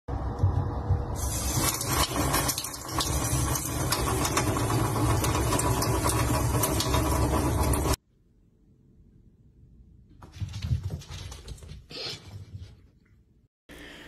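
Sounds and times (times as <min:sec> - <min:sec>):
low rumble: 0:00.1 - 0:01.4.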